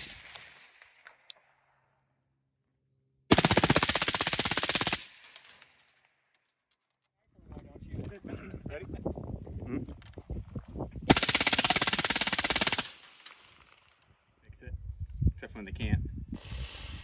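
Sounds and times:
suppressed rifle automatic burst: 3.3s - 5.4s, 11.1s - 13.6s.

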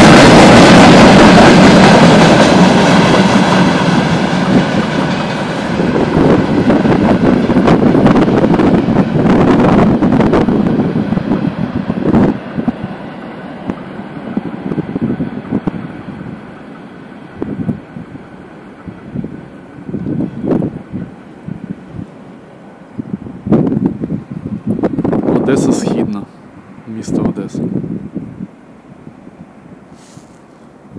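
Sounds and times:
freight train wheels clattering: 0.0s - 21.7s.

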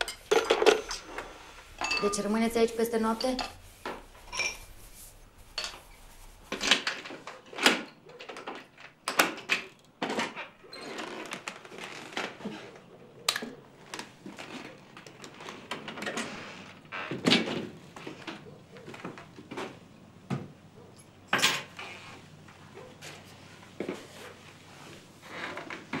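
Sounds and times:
footsteps: 0.0s - 7.3s.

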